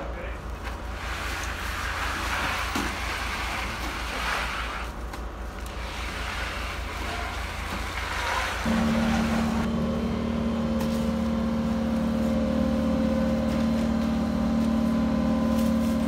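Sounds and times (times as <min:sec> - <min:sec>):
diesel engine running: 0:08.7 - 0:16.0.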